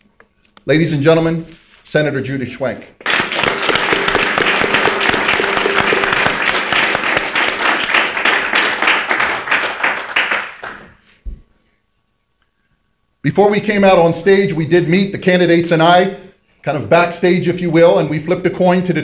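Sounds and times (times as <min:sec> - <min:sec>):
audience applause: 0:03.0 - 0:11.0.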